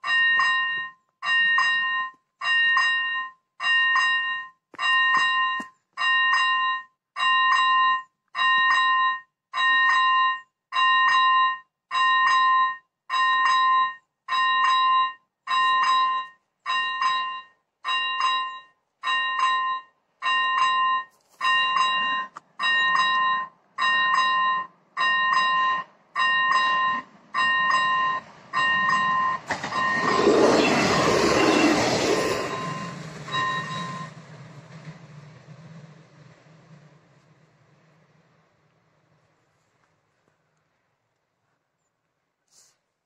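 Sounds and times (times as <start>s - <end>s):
level crossing bell dinging: 0.0s - 30.1s.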